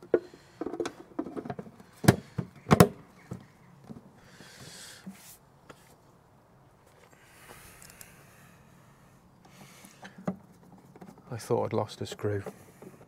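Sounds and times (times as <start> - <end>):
soft rustle: 4.4 - 8.2.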